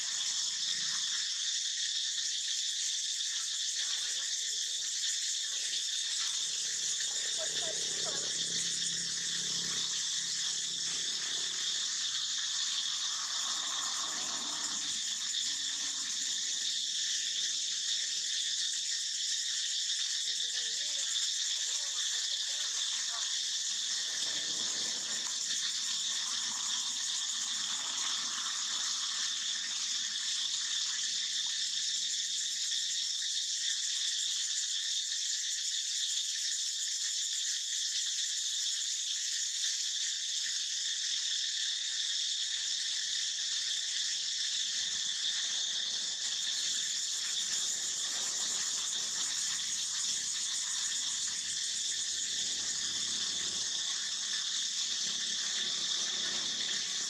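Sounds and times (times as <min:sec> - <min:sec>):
insects trilling: 0:00.0 - 0:57.0.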